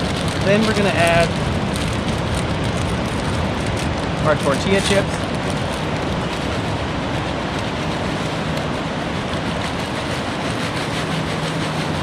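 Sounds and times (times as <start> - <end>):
loud steady rushing noise: 0.0 - 12.0
low hum: 5.0 - 12.0.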